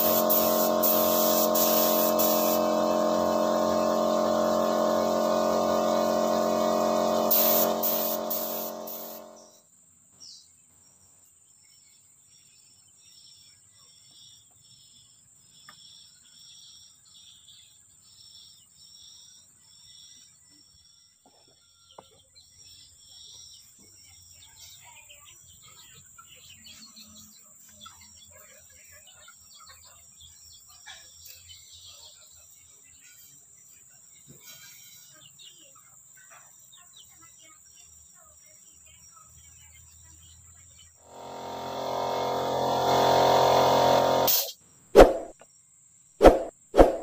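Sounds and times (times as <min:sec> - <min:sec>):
pulsing insect call: 0:00.0 - 0:09.6, 0:41.0 - 0:45.4
steady insect drone: 0:00.0 - 0:09.8, 0:10.8 - 0:21.2, 0:29.5 - 0:44.8
short bird chirps: 0:46.2 - 0:47.0.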